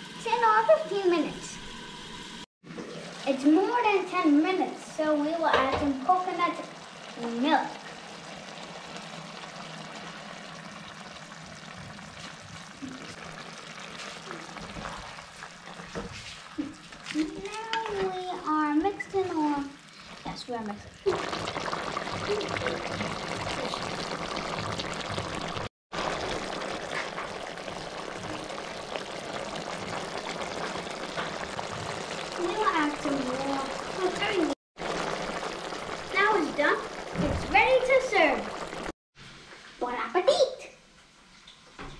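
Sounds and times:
curry simmering with low hiss: 0.0 - 41.9
liquid being poured: 6.7 - 18.0, 19.1 - 38.9.

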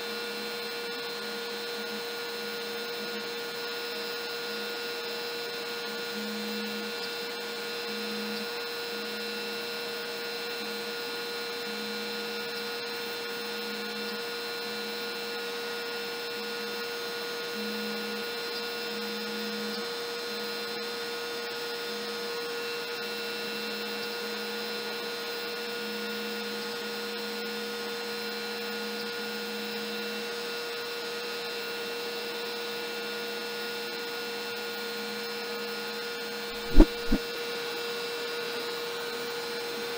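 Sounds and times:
router humming with high whine: 0.0 - 23.3.

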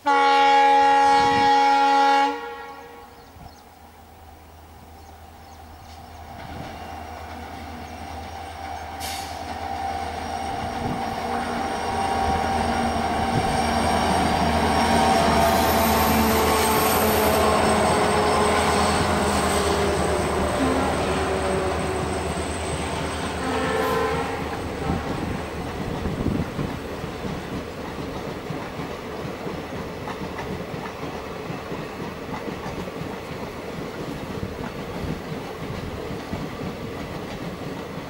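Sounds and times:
diesel train passing: 0.0 - 38.0
train wheels squealing on rails: 5.0 - 27.6.

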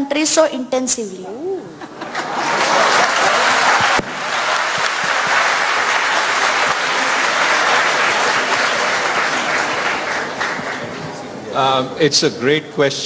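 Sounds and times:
audience applauding: 2.0 - 11.3.

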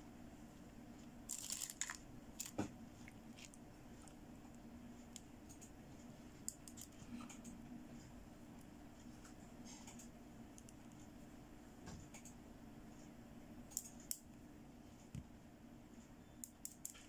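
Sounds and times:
steady low hum: 0.0 - 17.0
plastic bangles clicking and rustling: 1.3 - 2.6.

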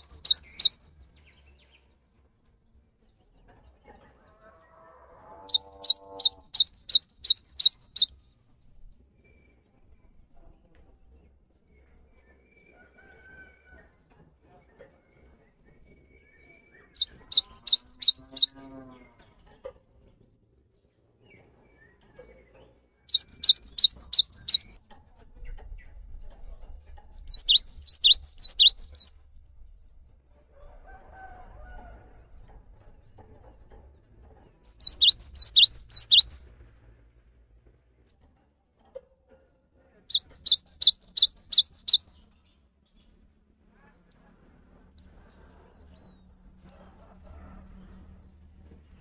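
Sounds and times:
bird whistling song: 0.0 - 0.9, 5.5 - 8.2, 17.0 - 18.6, 23.1 - 24.7, 27.1 - 29.1, 34.6 - 36.4, 40.1 - 42.2, 44.2 - 48.3.

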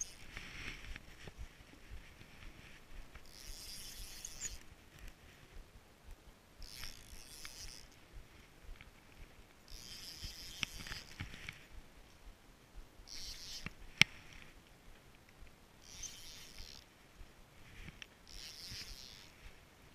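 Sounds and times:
fishing reel cranking: 0.0 - 0.4, 3.2 - 4.7, 6.6 - 8.0, 9.7 - 11.5, 13.1 - 13.8, 15.8 - 16.9, 18.2 - 19.5.

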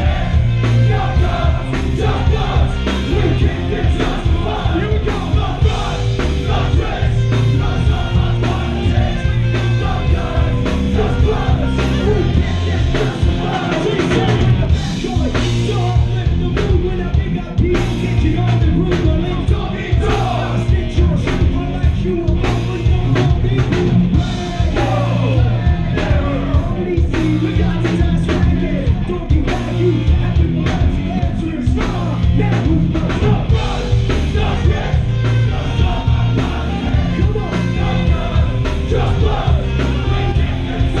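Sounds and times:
drum kit: 0.0 - 41.0
shouted and sung vocals: 0.0 - 41.0.

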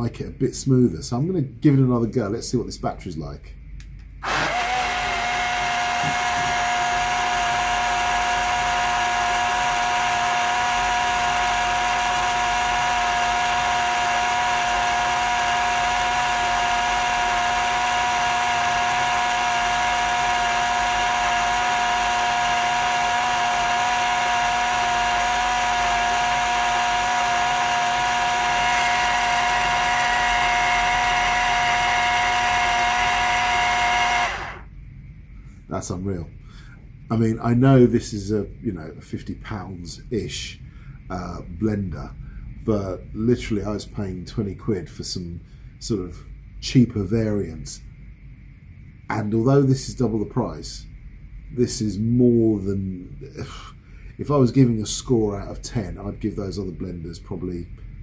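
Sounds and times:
blender motor whining: 4.2 - 34.7.

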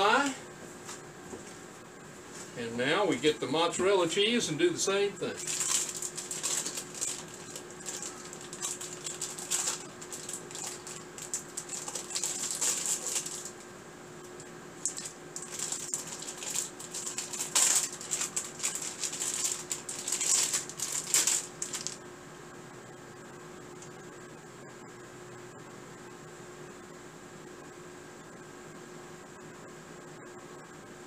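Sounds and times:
faint steady hum: 0.0 - 31.0
plastic wrapper crinkling: 5.3 - 13.6, 14.8 - 22.0.

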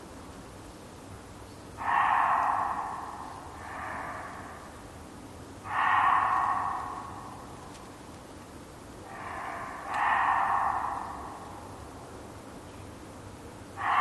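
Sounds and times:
deer barking: 1.8 - 4.8, 5.6 - 7.6, 9.1 - 11.8, 13.8 - 14.0.

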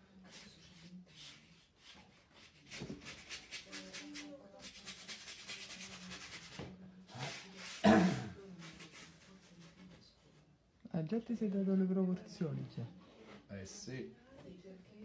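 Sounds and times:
paintbrush scrubbing on canvas: 0.2 - 10.0.

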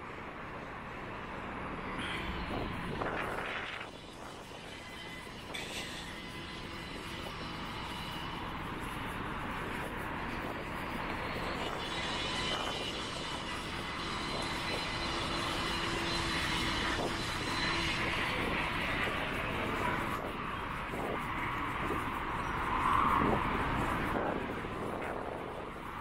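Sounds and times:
aircraft engine drone: 0.0 - 26.0.

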